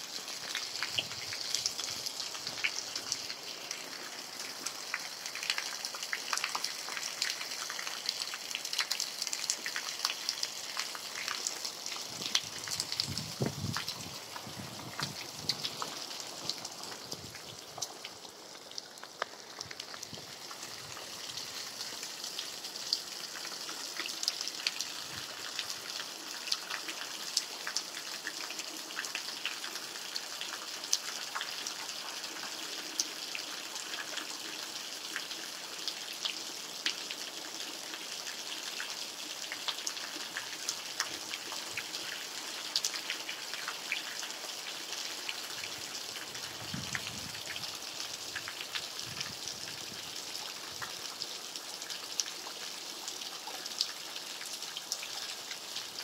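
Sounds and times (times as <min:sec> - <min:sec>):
rain hissing: 0:00.0 - 0:27.2
raindrops ticking: 0:00.3 - 0:31.7.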